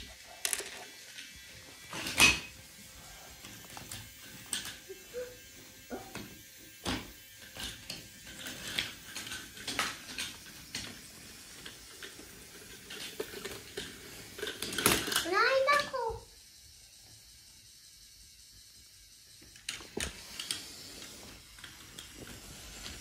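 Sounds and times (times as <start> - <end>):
wooden pieces clacking on track: 0.0 - 1.3
toy train motor whirring: 0.0 - 23.0.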